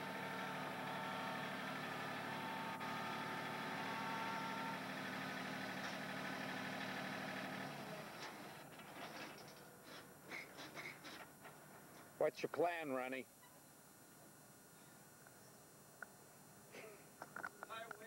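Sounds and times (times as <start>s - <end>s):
tractor engine running: 0.0s - 9.6s.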